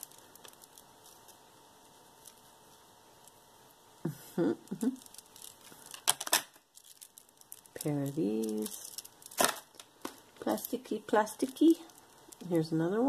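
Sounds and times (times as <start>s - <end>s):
bead clicks and bag rustles: 0.0s - 2.5s, 4.8s - 12.7s.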